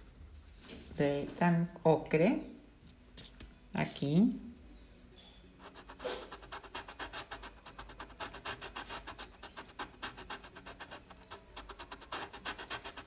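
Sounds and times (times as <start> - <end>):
colored pencil scratching on paper: 5.6 - 13.0.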